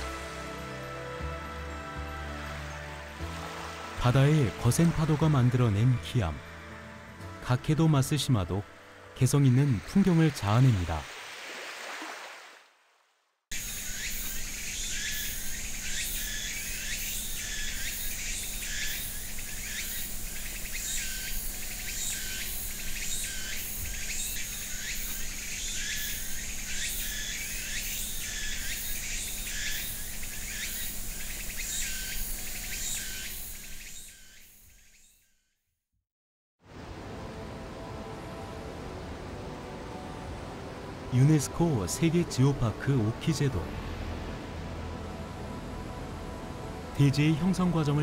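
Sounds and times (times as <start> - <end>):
high continuous insect whine: 13.5 - 35.3
insects chirping: 13.5 - 35.4.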